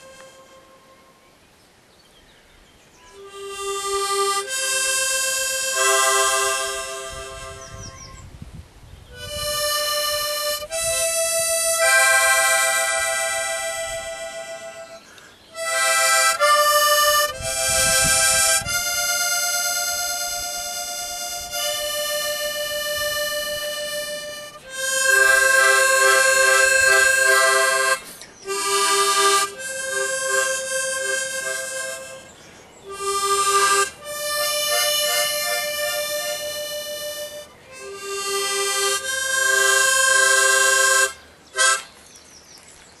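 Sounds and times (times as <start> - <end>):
harmonica playing slow chords: 0.0 - 1.2, 3.0 - 8.2, 9.1 - 41.9.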